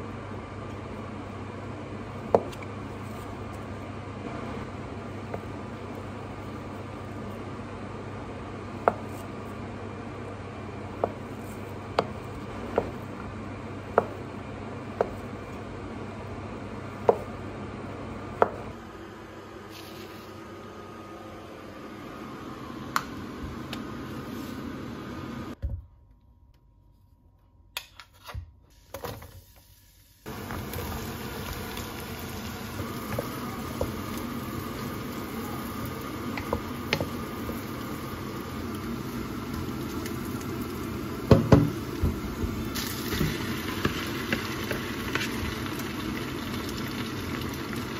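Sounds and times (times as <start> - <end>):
meat sizzling in a pot: 28.8 - 47.9.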